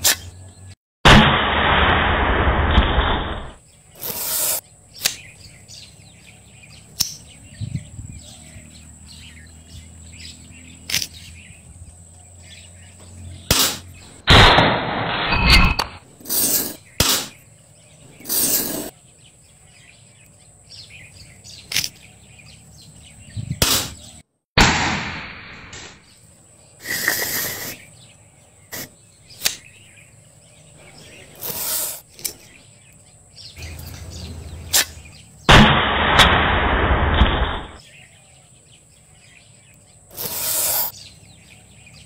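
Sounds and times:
bamboo slingshots snapping: 0.0 - 0.3, 5.0 - 5.3, 10.9 - 11.2, 13.5 - 13.9, 17.0 - 17.4, 21.6 - 22.0, 23.6 - 24.0, 29.3 - 29.7, 34.7 - 36.5
birds chirping: 0.0 - 0.8, 3.0 - 14.4, 15.3 - 24.4, 25.9 - 42.0.

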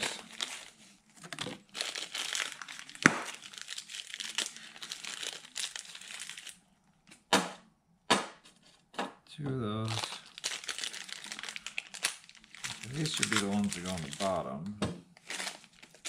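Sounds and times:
plastic bags crinkling: 0.0 - 6.6, 9.8 - 14.5, 15.1 - 16.0.

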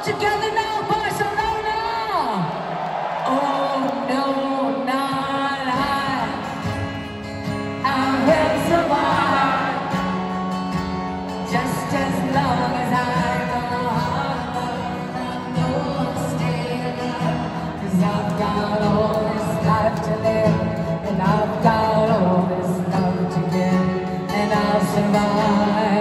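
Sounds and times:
live concert music: 0.0 - 26.0
person singing: 3.2 - 7.0, 7.7 - 10.7, 11.3 - 26.0
acoustic guitar: 4.7 - 26.0.

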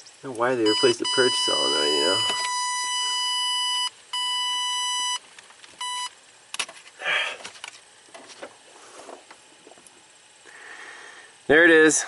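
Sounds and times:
high-pitched electronic beep: 0.6 - 5.2, 5.8 - 6.1.

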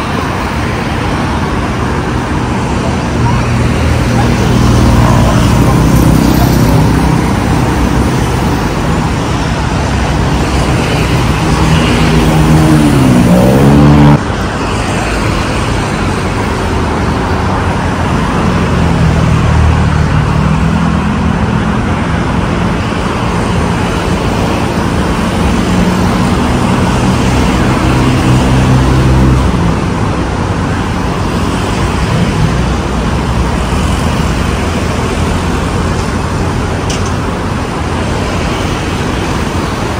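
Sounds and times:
road traffic: 0.0 - 39.9
engine pitch rising and falling: 11.3 - 14.2.

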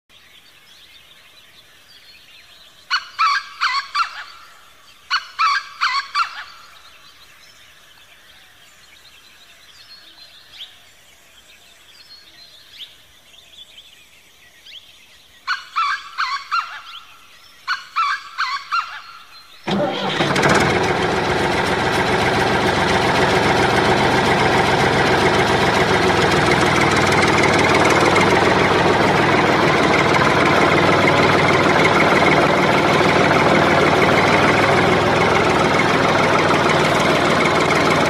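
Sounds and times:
bird calls of quick repeated notes: 2.9 - 7.0.

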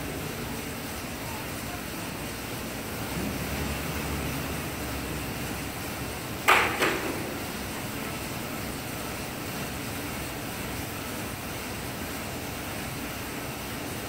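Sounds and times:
exercise bike fan whirring: 0.0 - 14.0
sharp knocks: 6.4 - 7.5.

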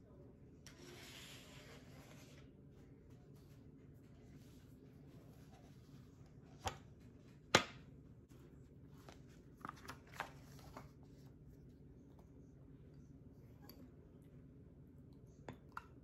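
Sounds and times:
paper rustling: 8.4 - 11.3.

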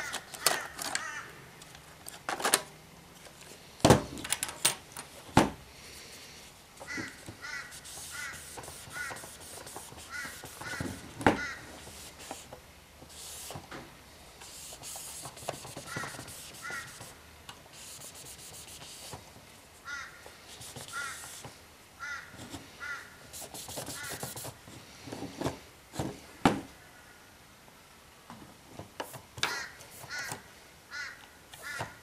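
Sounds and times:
hands handling plastic part: 0.0 - 5.5.

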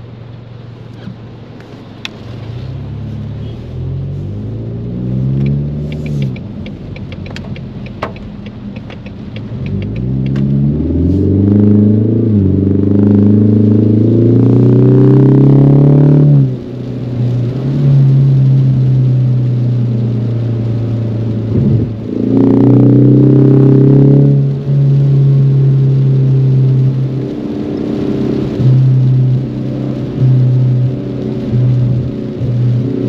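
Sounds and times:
car engine accelerating: 0.0 - 33.0
rapid light ticks: 5.4 - 10.4.

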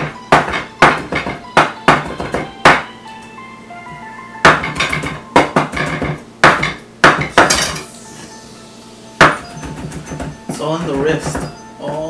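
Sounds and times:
knife chopping on wooden board: 0.0 - 2.9, 4.5 - 7.7, 9.2 - 12.0
faint background music: 0.0 - 12.0.

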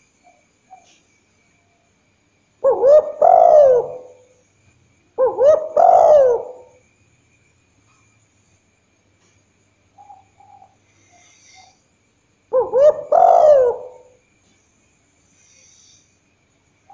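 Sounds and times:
dove cooing: 2.6 - 4.4, 5.2 - 6.8, 12.5 - 14.2.

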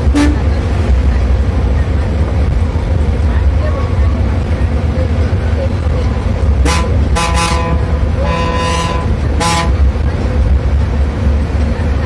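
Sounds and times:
bus horn tooting: 0.0 - 0.6, 6.6 - 9.9
bus engine drone: 0.0 - 12.0.

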